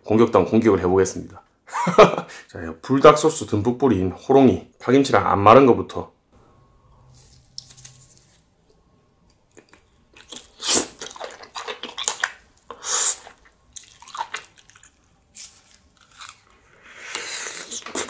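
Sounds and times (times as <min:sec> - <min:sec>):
wet biting and chewing: 0:09.4 - 0:18.0.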